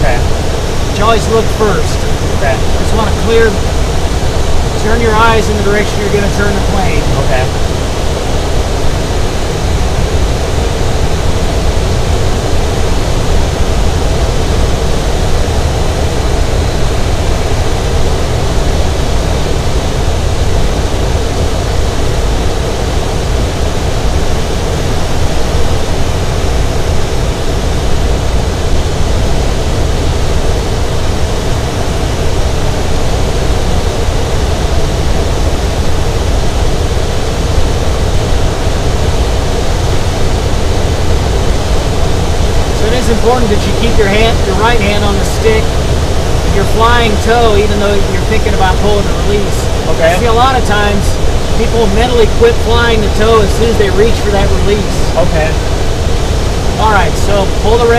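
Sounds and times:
airflow hiss in glider cockpit: 0:00.0 - 0:57.9
low rumble: 0:00.0 - 0:57.9.

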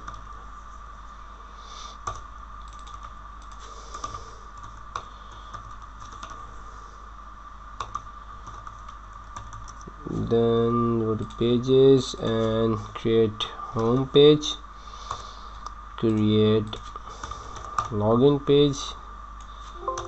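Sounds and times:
steady background hum: 0:00.0 - 0:20.0
keyboard typing: 0:19.8 - 0:20.0.

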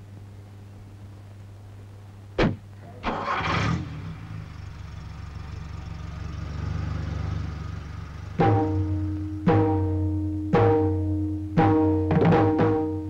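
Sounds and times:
car engine cranking: 0:02.9 - 0:09.5
car engine running: 0:03.1 - 0:10.7.

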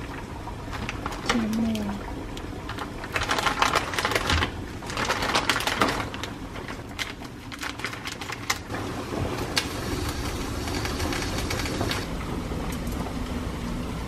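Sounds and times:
plastic packets crinkling: 0:00.7 - 0:01.8, 0:02.6 - 0:08.7.

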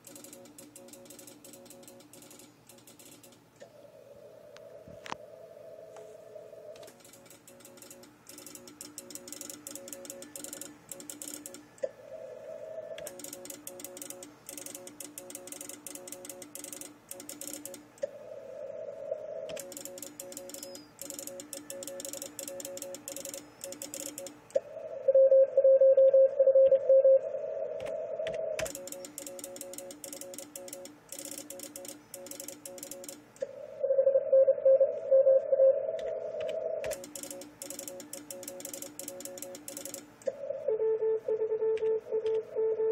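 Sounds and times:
received morse code tones: 0:25.0 - 0:29.2, 0:40.6 - 0:42.9
sent morse code tone: 0:40.7 - 0:42.9.

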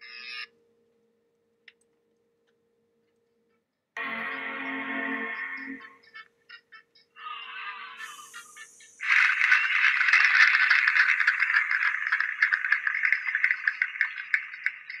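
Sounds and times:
applause: 0:09.0 - 0:15.0.

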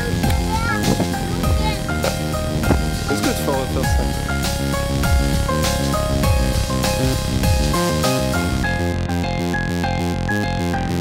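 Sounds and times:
mellow electronic music: 0:00.0 - 0:11.0.

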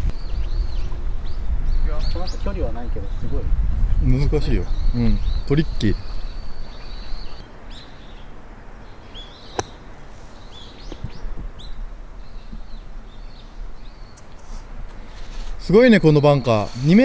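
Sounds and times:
small birds chirping: 0:00.0 - 0:17.0
golf club hitting sand: 0:09.5 - 0:09.8.

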